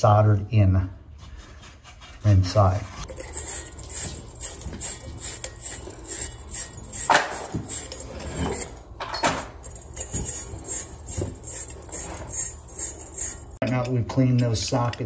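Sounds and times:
wire brush scratching metal: 3.0s - 8.8s, 9.5s - 13.6s.

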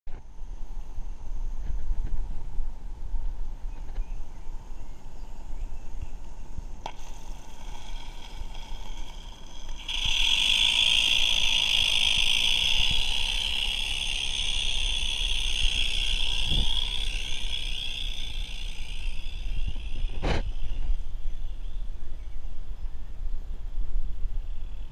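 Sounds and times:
model steam locomotive hissing: 6.9s - 20.8s.

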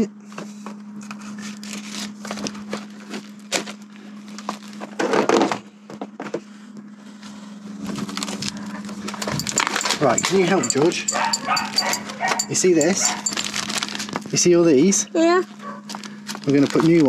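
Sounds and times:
low hum: 7.5s - 14.2s
plastic packet crinkling: 13.4s - 14.4s, 15.9s - 17.0s.

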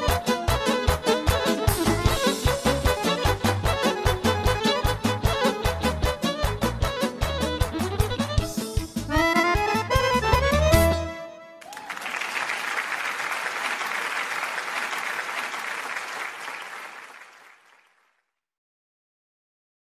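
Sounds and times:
band music with heavy beat: 0.0s - 11.1s
applause: 11.6s - 18.3s.

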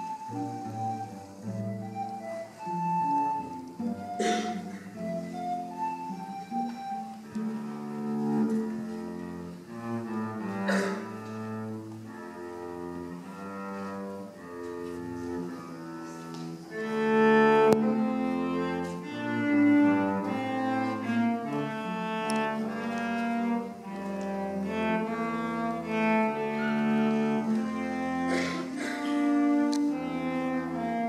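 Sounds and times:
bowed cello and double bass: 0.0s - 31.0s.

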